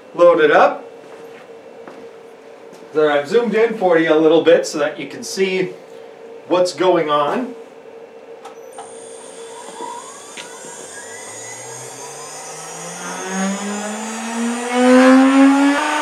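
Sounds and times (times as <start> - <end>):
router spindle motor whine: 8.6 - 16.0
very high thin whine: 8.7 - 16.0.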